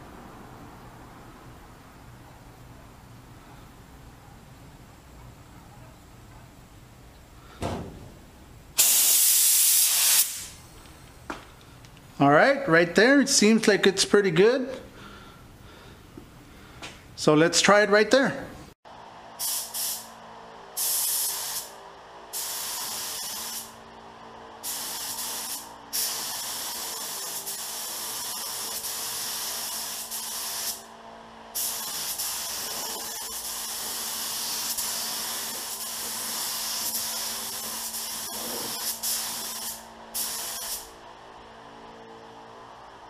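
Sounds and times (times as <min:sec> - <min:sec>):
spray gun hissing: 0:08.8 - 0:10.6, 0:19.4 - 0:20.1, 0:20.8 - 0:21.7, 0:22.3 - 0:23.8, 0:24.6 - 0:30.8, 0:31.6 - 0:40.9.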